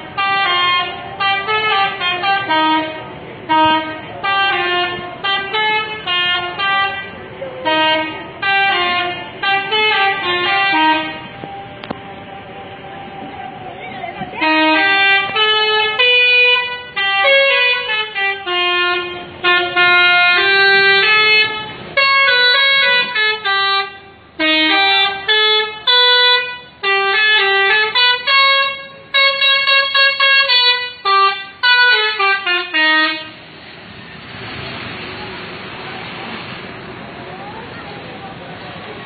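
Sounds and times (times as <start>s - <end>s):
musical bus air horn: 0.0s - 11.6s, 14.4s - 33.6s.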